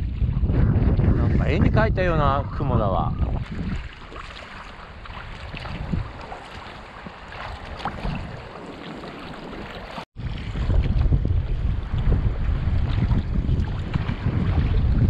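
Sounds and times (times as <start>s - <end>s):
water lapping against kayak: 0.0s - 15.0s
wind on microphone: 0.0s - 15.0s
paddle strokes splashing: 3.2s - 15.0s.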